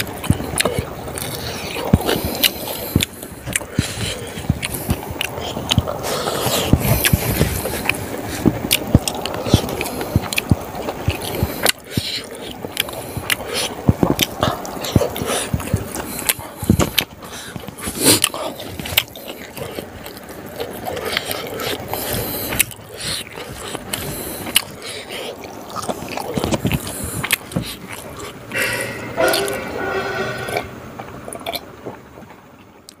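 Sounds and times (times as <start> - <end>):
wet chewing and lip smacking: 0.0 - 29.1
drink gulped: 26.3 - 29.6.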